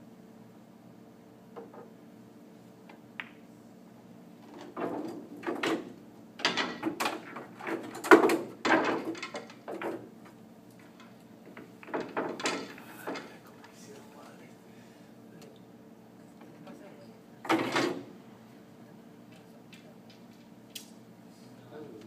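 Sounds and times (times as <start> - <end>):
pool balls clacking: 1.5 - 1.9, 4.4 - 10.1, 10.8 - 13.4.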